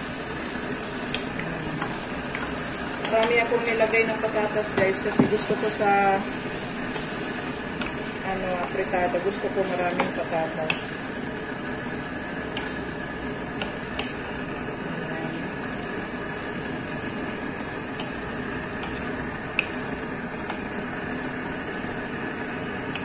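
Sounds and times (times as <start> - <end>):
food simmering and sizzling in a wok: 0.0 - 23.0
spatula clicking against pan: 9.9 - 10.9, 12.5 - 12.8, 13.6 - 14.2, 18.8 - 19.8.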